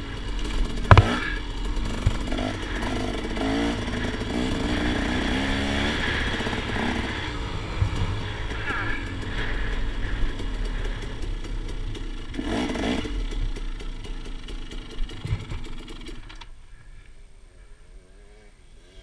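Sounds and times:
dirt bike engine running hard: 0.0s - 17.0s
knocks and clatter from riding: 0.1s - 3.3s, 7.8s - 16.5s.

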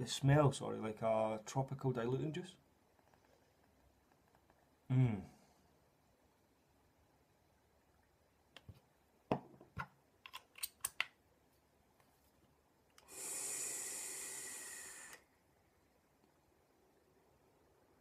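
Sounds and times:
e-cigarette hissing: 13.0s - 15.3s.

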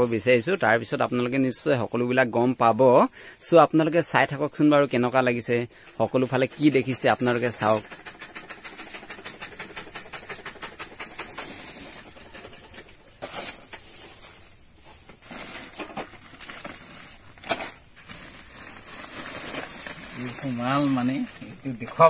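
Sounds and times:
cloth and plastic rustling: 5.3s - 22.0s
fast regular clicks: 6.3s - 13.0s.

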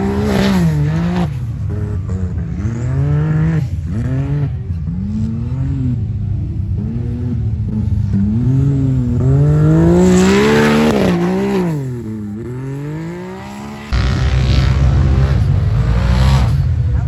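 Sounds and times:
utv engine running steady: 0.0s - 12.7s
utv engine revving: 0.0s - 17.0s.

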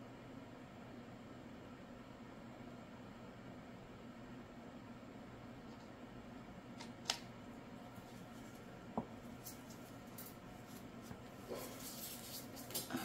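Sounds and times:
soft rubbing and rustling: 7.9s - 13.0s.

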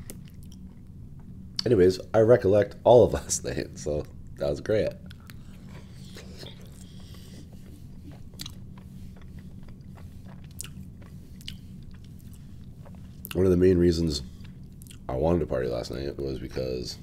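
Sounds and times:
crunchy chewing: 0.0s - 1.7s, 5.0s - 13.5s, 14.2s - 15.1s
steady low hum: 0.0s - 17.0s.

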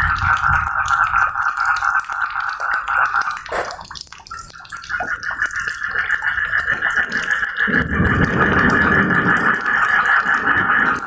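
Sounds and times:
rain dripping: 0.0s - 11.0s
thunder rumble: 6.9s - 11.0s.

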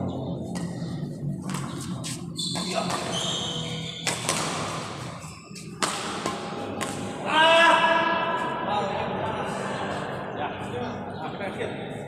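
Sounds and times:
shoes squeaking on court floor: 0.4s - 7.1s
badminton racket hitting shuttlecock: 0.5s - 7.2s.

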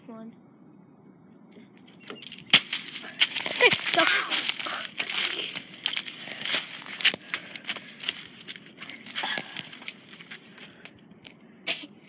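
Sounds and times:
leaves crackling and rustling: 2.2s - 10.7s
footsteps crunching on dirt path: 2.2s - 10.9s.

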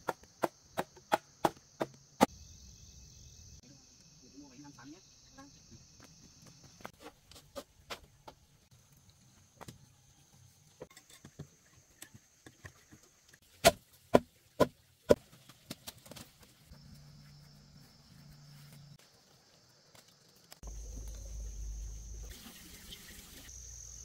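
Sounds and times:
crickets trilling: 0.0s - 7.5s, 16.7s - 24.0s.

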